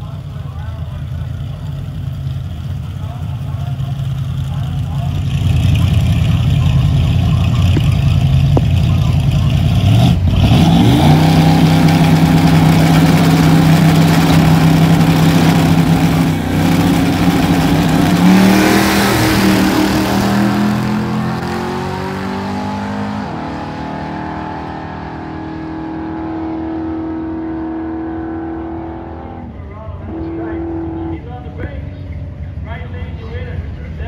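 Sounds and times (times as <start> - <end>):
drag racing cars revving and accelerating: 3.4 - 34.0.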